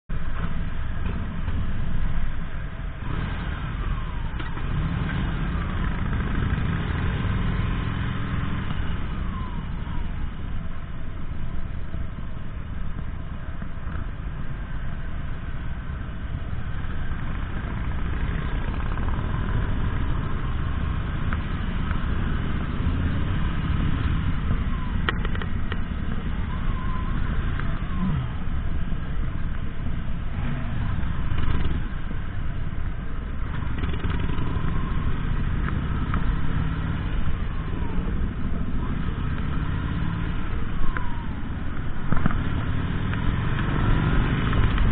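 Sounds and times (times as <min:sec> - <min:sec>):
other motorcycle engines: 0:00.1 - 0:44.9
motorcycle engine revving: 0:03.0 - 0:09.3, 0:33.4 - 0:41.2, 0:42.1 - 0:44.9.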